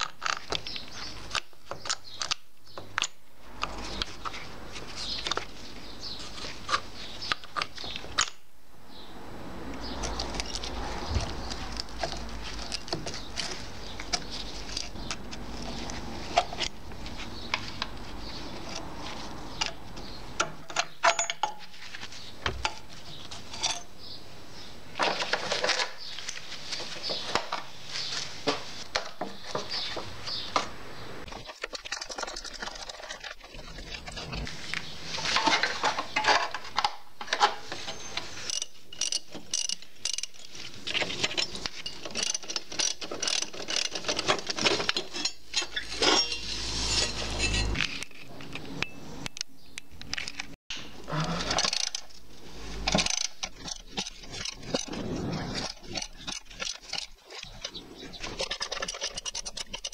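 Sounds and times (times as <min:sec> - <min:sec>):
metallic clicks and clinks: 0:19.5 - 0:21.8, 0:38.0 - 0:50.6.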